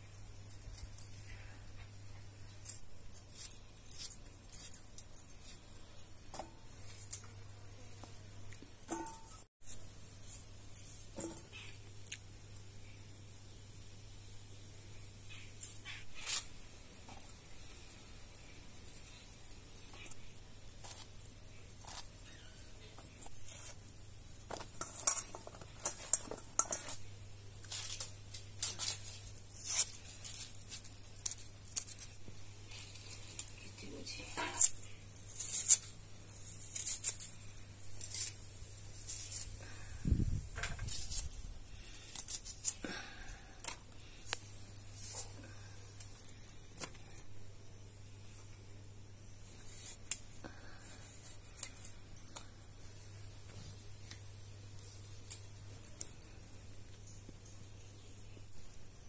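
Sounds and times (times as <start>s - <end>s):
food preparation clicks and scrapes: 24.4s - 32.2s.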